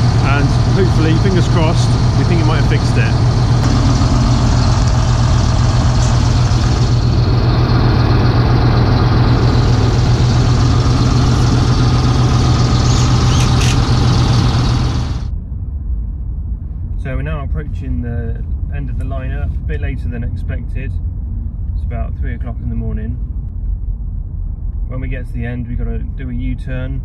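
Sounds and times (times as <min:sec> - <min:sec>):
large engine idling: 0:00.0 - 0:15.8
road noise inside a car: 0:00.0 - 0:27.0.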